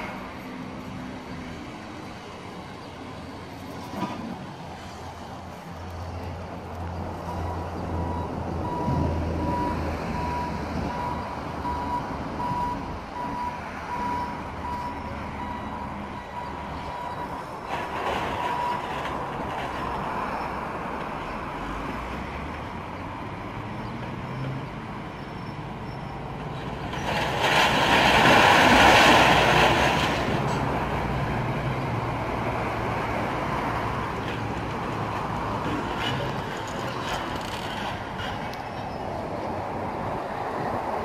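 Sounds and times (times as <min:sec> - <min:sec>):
reversing beep: 0:07.3 - 0:17.4, 0:18.4 - 0:18.9
rubble crashing out of truck: 0:26.9 - 0:30.8.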